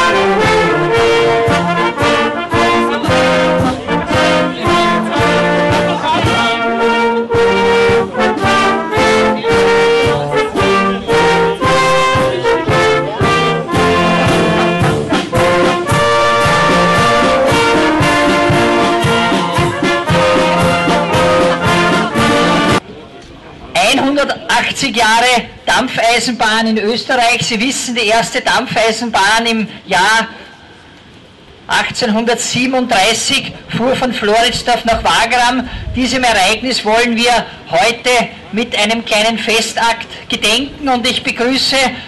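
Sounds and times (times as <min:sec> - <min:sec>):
steady bass drum beat: 0:00.0 - 0:22.8
trumpets trombones and clarinets: 0:00.0 - 0:22.8.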